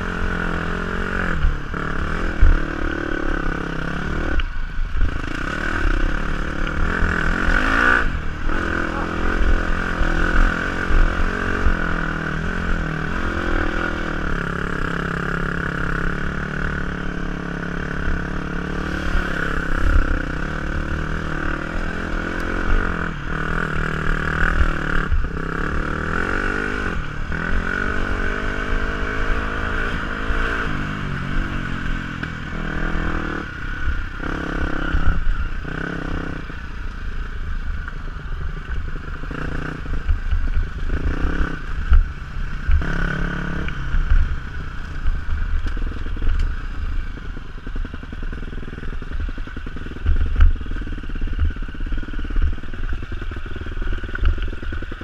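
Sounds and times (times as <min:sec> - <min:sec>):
dirt bike engine revving: 0:00.0 - 0:36.6, 0:39.0 - 0:44.8.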